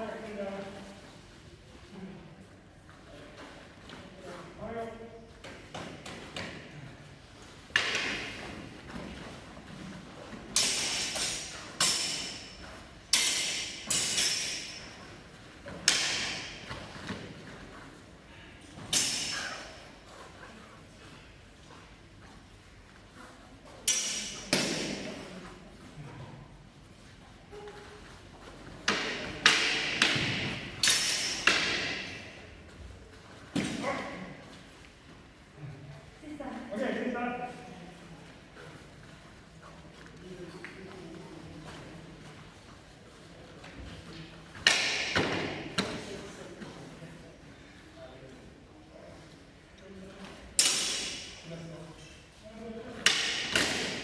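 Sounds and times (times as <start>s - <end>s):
nylon blades clashing: 7.6s - 17.7s, 18.8s - 20.5s, 23.8s - 25.2s, 28.7s - 32.5s, 44.5s - 45.9s, 50.5s - 51.5s, 53.0s - 54.0s.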